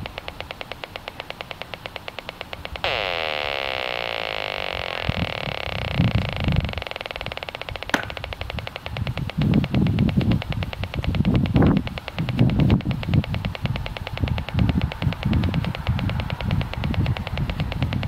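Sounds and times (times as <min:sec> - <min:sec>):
dense electronic buzz: 0:00.0 - 0:12.8
rf analyzer ticking: 0:00.0 - 0:18.0
sharp click: 0:07.4 - 0:14.6.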